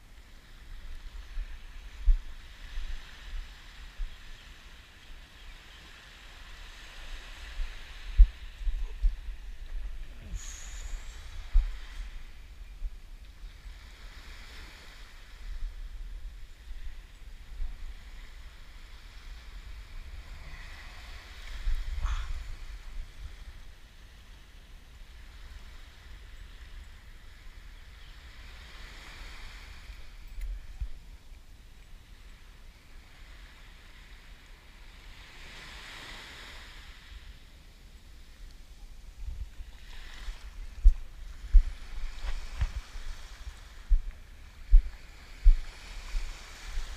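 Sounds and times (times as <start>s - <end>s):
wind buffeting microphone: 0.0s - 4.5s, 6.4s - 24.2s, 38.8s - 46.9s
small waves washing on sand: 0.0s - 46.9s.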